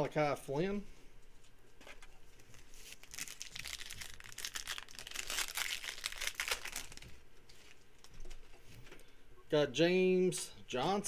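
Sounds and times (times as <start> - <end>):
wrapper crinkling: 2.4 - 8.2
card pack wrapper tearing: 2.8 - 7.1.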